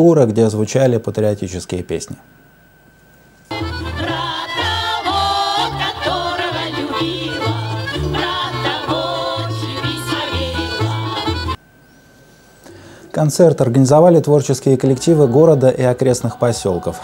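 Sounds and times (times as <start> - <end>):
instrumental accompaniment with bass line: 3.5 - 11.6
women singing folk song in chorus: 3.5 - 11.6.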